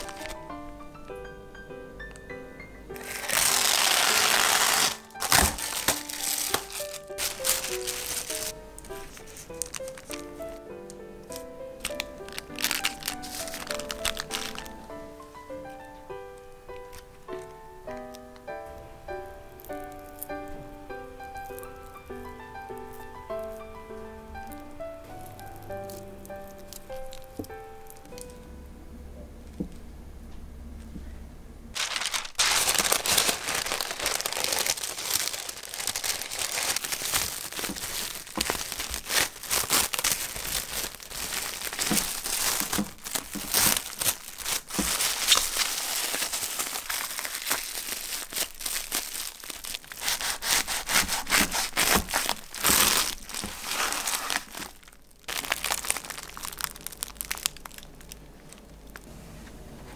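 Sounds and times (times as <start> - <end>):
plastic wrap crinkling: 0.0 - 0.9, 2.9 - 18.2, 19.2 - 23.6, 24.4 - 28.4, 31.7 - 59.1.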